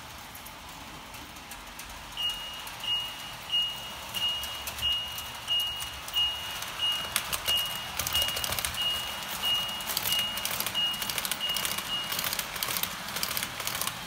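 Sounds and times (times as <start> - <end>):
toy train humming on track: 0.0 - 14.0
electronic warning beeps: 2.2 - 12.9.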